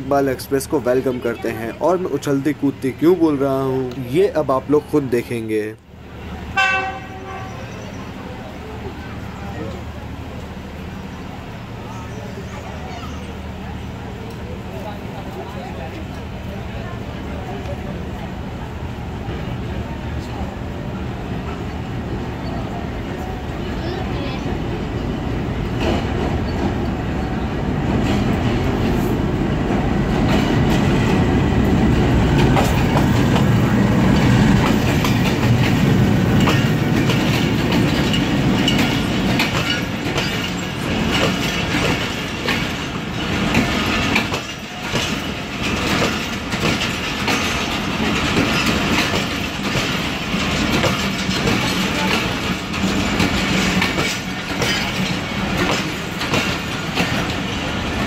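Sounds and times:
deep train rumble: 0.0 - 58.0
train wheels clattering: 21.3 - 58.0
coaches rattling: 30.1 - 58.0.

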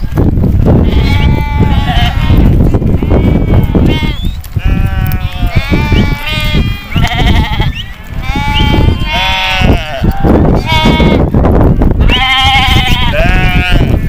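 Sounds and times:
sheep bleating: 0.8 - 11.3, 12.0 - 14.0.

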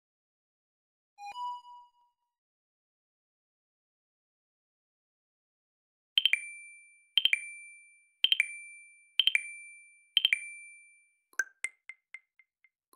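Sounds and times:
electronic timer ding: 6.2 - 12.3.

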